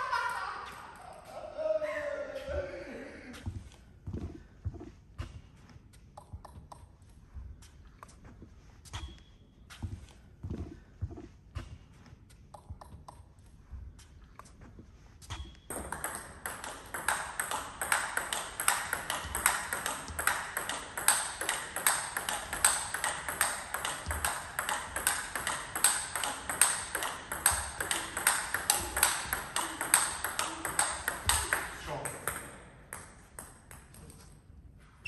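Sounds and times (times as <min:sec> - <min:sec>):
table tennis ball hits and bounces: 0:06.2 - 0:06.9, 0:12.5 - 0:13.3, 0:15.3 - 0:34.4.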